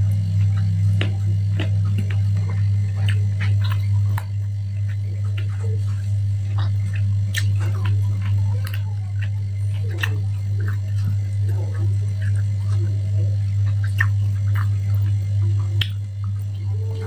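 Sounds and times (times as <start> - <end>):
person chewing food: 0.0 - 17.0
steady low hum: 0.0 - 17.0
wet mouth clicks: 0.1 - 5.9, 6.5 - 16.6.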